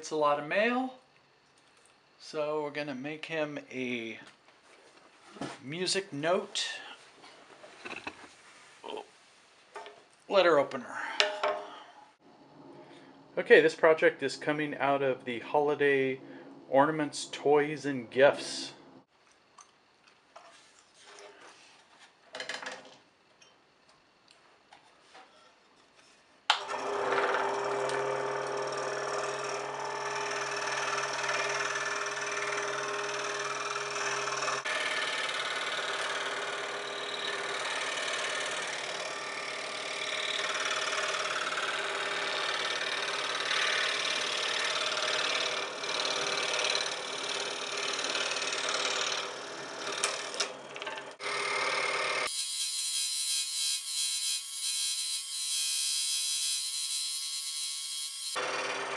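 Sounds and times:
scroll saw cutting wood: 0:26.6 - 0:50.5, 0:51.1 - 0:58.8.

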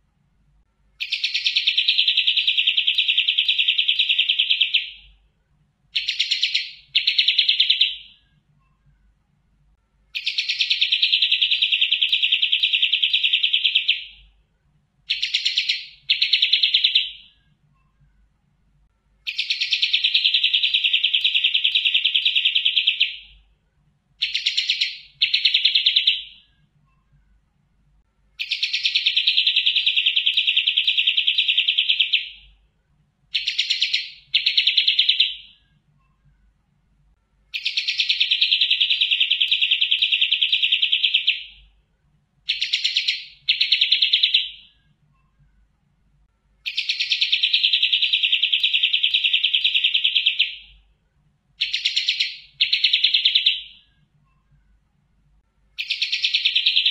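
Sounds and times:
songbird trilling: 0:01.0 - 0:05.1, 0:06.0 - 0:08.2, 0:10.2 - 0:14.3, 0:15.1 - 0:17.4, 0:19.3 - 0:23.4, 0:24.2 - 0:26.5, 0:28.4 - 0:32.5, 0:33.3 - 0:35.6, 0:37.5 - 0:41.6, 0:42.5 - 0:44.8, 0:46.6 - 0:50.8, 0:51.6 - 0:53.8, 0:55.8 - 0:56.9.

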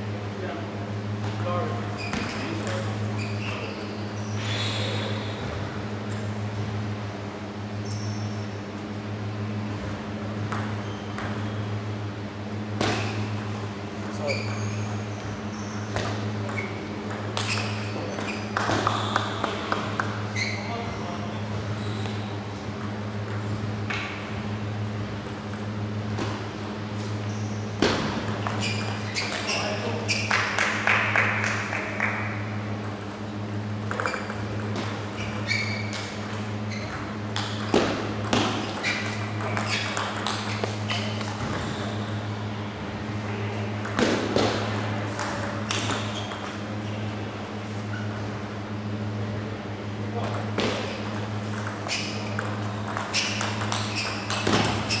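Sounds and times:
steady low hum: 0:00.0 - 0:55.0
table tennis ball clicks: 0:33.8 - 0:42.2, 0:50.2 - 0:55.0.

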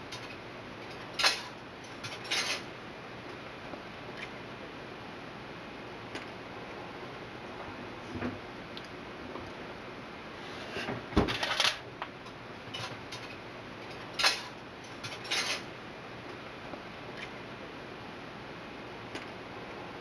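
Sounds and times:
faint background hum: 0:00.0 - 0:20.0
kitchenware clattering: 0:13.9 - 0:15.7.

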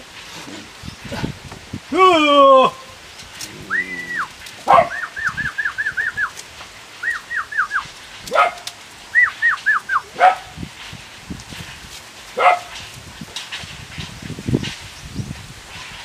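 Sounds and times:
rising yelp-like calls: 0:01.9 - 0:06.4, 0:07.0 - 0:07.9, 0:09.1 - 0:10.2.

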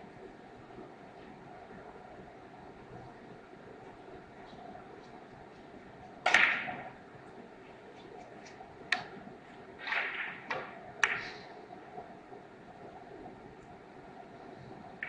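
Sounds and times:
billiard balls clicking: 0:06.2 - 0:07.0, 0:08.1 - 0:11.5.

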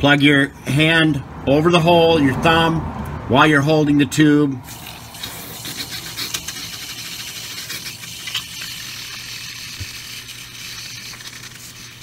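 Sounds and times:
aerosol can hissing: 0:04.7 - 0:12.0.

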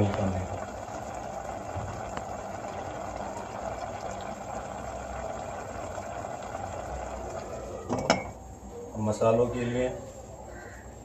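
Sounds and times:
gas stove burner hissing: 0:00.0 - 0:10.6.

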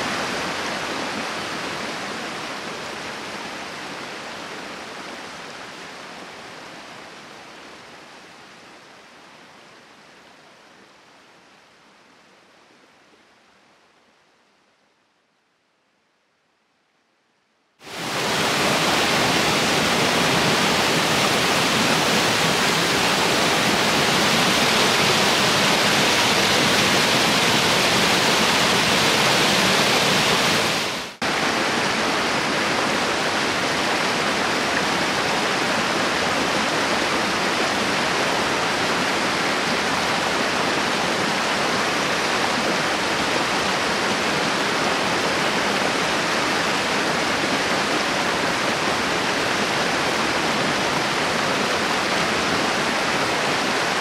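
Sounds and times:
river rapids rushing over rocks: 0:17.8 - 0:54.0.

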